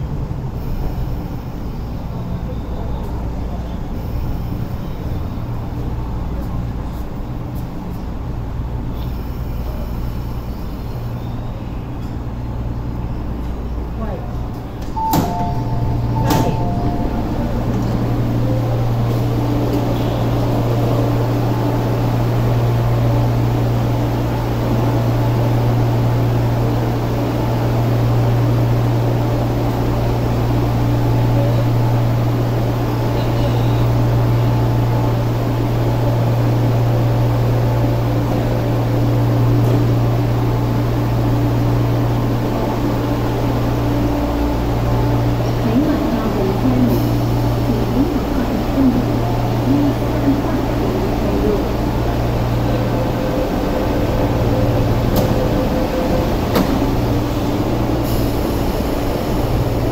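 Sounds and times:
electric train humming: 0.0 - 59.9
faint high tone: 15.0 - 19.0.

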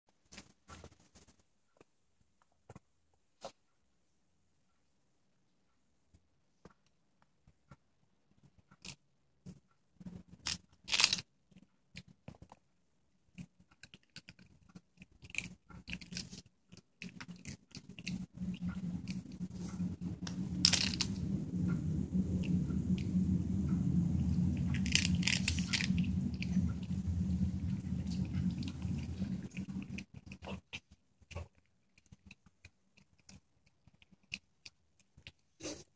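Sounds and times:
dog crunching a chew treat: 13.7 - 18.2.

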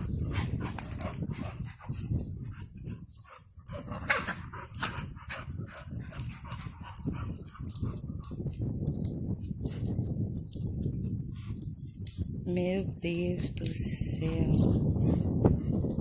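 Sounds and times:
dogs playing: 0.0 - 8.7
scuffling paws on dirt: 14.4 - 16.0.

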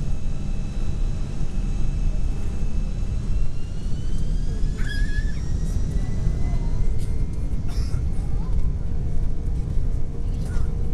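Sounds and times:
engine whine rising in pitch: 0.0 - 7.6
airplane cabin engine rumble: 0.0 - 10.9.

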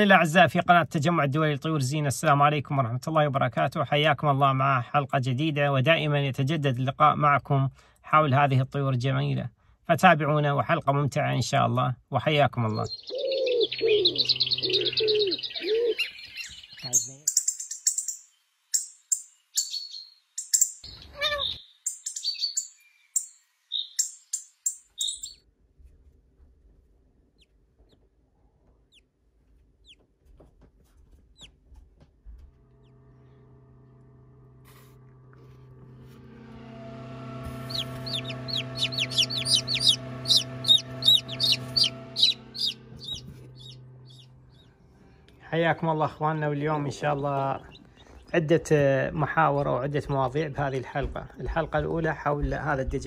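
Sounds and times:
steady low hum: 0.0 - 19.2, 31.0 - 53.0
small birds chirping: 12.6 - 25.4, 28.8 - 29.1, 29.8 - 30.0, 37.5 - 45.4, 46.5 - 50.7
chicks peeping rapidly: 12.8 - 18.2, 19.1 - 25.4, 37.4 - 44.8, 46.6 - 50.3.

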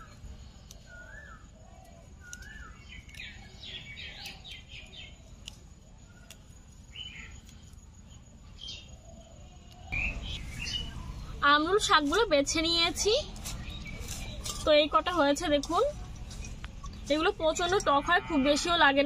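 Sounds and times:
high bird chirps: 8.5 - 11.4.

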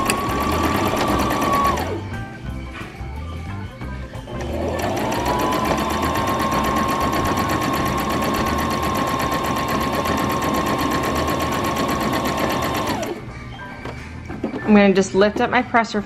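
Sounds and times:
sewing machine running: 0.0 - 2.0, 4.3 - 13.2.

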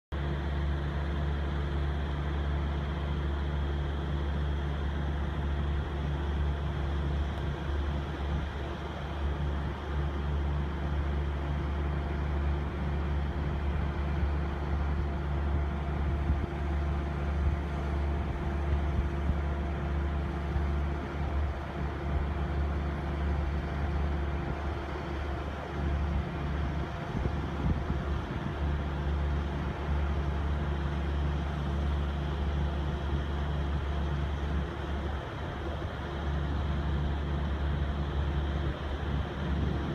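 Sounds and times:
low engine hum: 0.0 - 39.9.

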